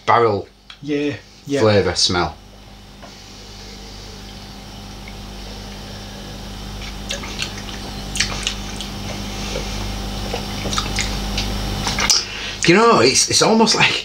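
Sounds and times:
low hum: 0.0 - 13.4
wet mouth clicks and smacks: 6.8 - 9.6, 10.2 - 12.3.

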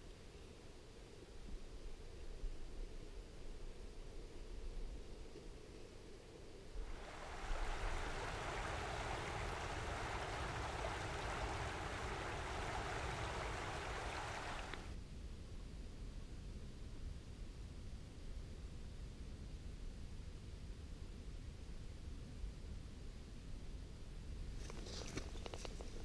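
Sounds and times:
faint low rumble: 0.0 - 24.6
stream water rushing: 6.8 - 15.0.

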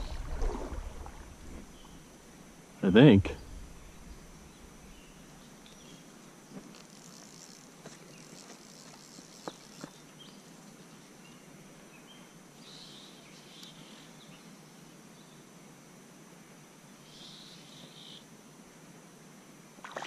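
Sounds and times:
insect trill: 0.0 - 11.4.

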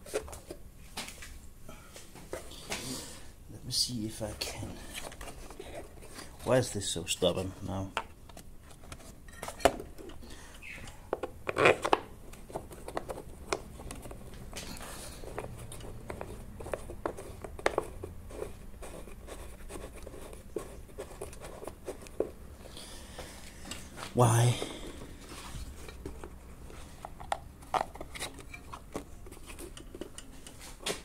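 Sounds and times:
plastic engine cover clicking and scraping: 11.2 - 22.4, 25.8 - 31.0.

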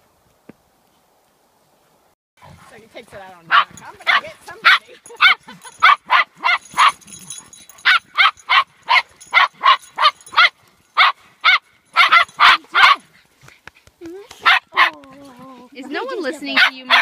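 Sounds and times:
dog barking sharply: 3.5 - 7.0, 7.8 - 13.0, 14.4 - 15.0, 16.5 - 17.0.

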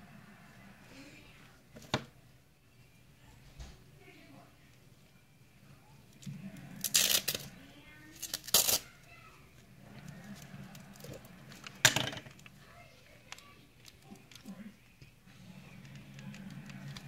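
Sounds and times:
loud rustling of craft materials: 6.1 - 17.0.

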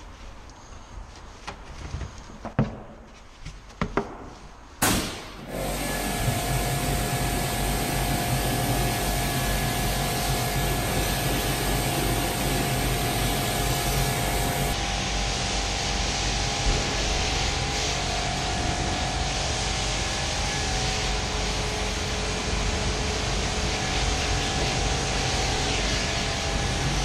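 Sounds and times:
pressure washer spraying: 4.8 - 14.8
machine hum and whine: 4.8 - 27.0.

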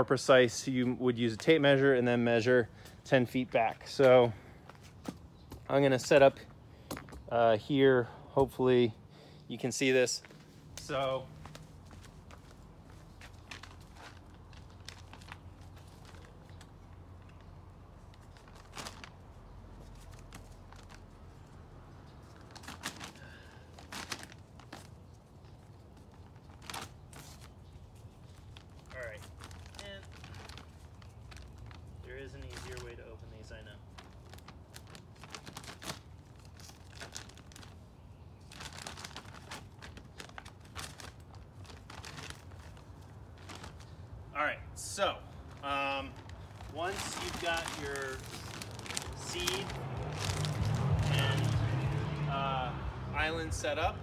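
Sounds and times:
seed bag rustling and crackling: 9.7 - 21.5, 22.1 - 44.0, 45.0 - 52.2.

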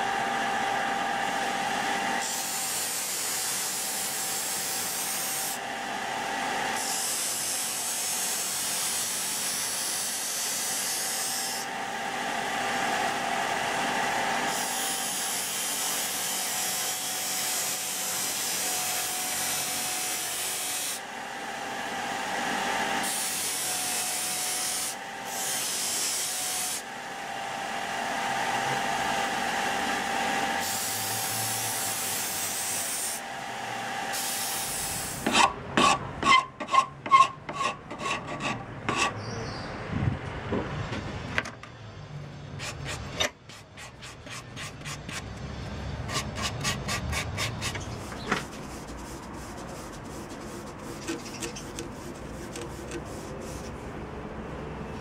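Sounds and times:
scratchy sanding of wood: 36.2 - 39.2, 42.6 - 45.3, 46.1 - 54.0.

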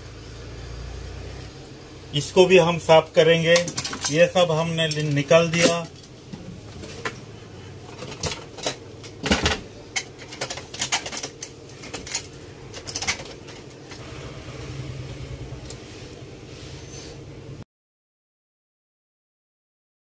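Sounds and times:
steady low hum: 0.0 - 17.6
metal stove parts clinking: 3.2 - 7.2, 7.8 - 14.0.

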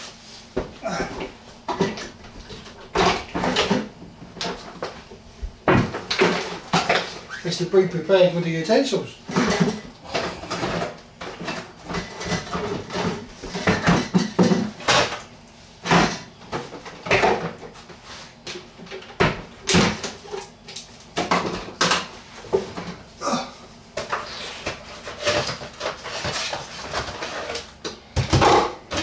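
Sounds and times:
pans and utensils clattering: 0.9 - 5.0, 5.7 - 7.3, 9.3 - 15.2, 24.0 - 29.0.

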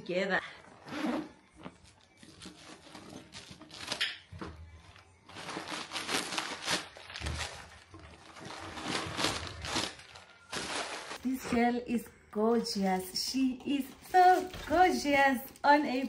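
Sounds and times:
packaging rustling and crinkling: 1.8 - 4.2, 4.9 - 11.2.

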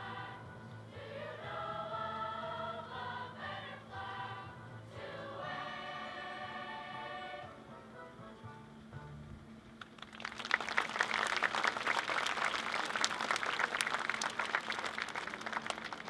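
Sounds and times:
children's choir singing: 0.0 - 7.6
audience applauding: 9.8 - 16.0.

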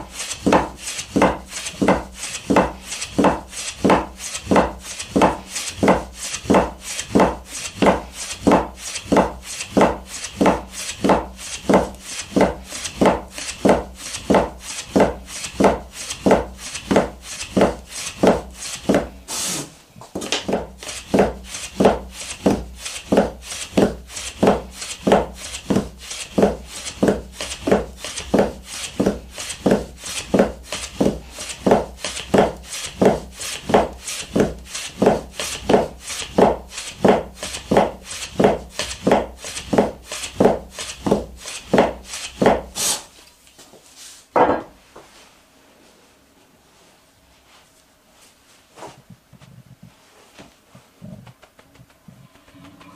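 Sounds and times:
knife cutting dough on wood: 0.2 - 19.2, 20.2 - 43.1.

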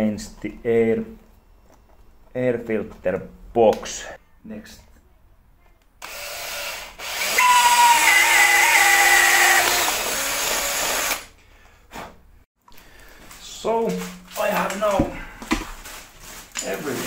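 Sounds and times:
cordless drill whining: 6.0 - 11.3.

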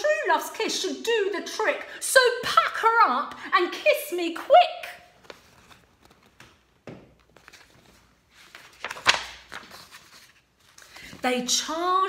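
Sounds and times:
book rustling and knocking: 5.2 - 11.2
page flick: 8.6 - 9.8.

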